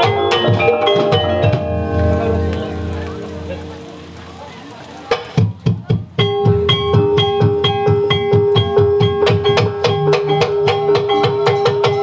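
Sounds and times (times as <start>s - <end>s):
gamelan music: 0.0s - 5.6s, 6.2s - 12.0s
high ringing notes: 0.2s - 5.1s
quick even drumbeats: 5.0s - 12.0s.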